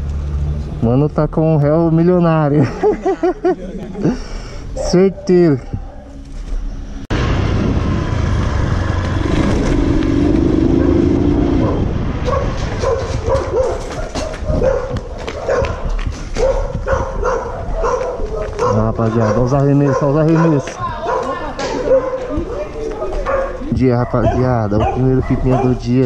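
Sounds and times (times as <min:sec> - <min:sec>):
dog barking: 0:04.8 - 0:06.2, 0:11.6 - 0:26.0
background rumble: 0:06.9 - 0:15.2.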